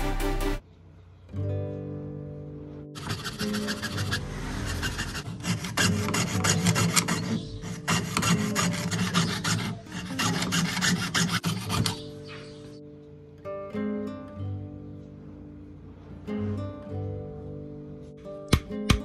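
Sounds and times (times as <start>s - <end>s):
saw rasping through metal coin: 3.0s - 12.2s.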